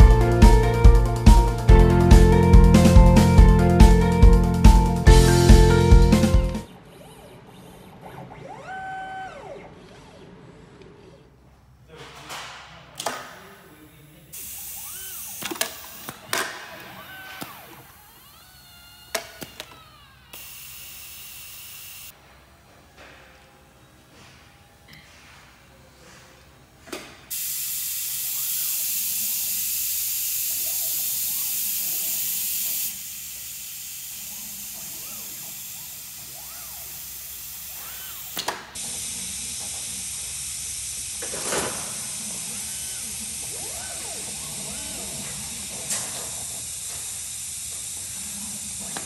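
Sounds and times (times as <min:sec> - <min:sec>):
stepper motors whining: 0:14.4 - 0:22.1, 0:27.3 - 0:49.0
steady loud hiss: 0:27.2 - 0:43.6.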